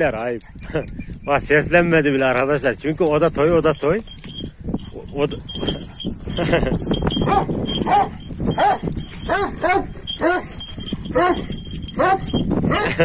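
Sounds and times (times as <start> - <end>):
dogs barking in play: 7.2 - 13.0.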